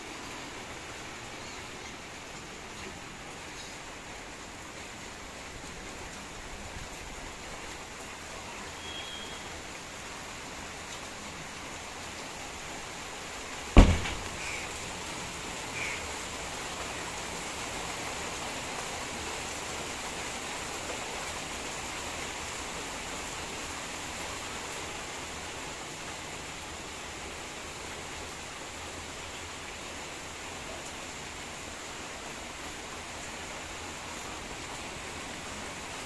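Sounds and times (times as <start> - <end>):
heavy rain falling: 0.0 - 36.0
faint short chirps: 8.8 - 9.5
loud sharp thump: 13.8 - 14.5.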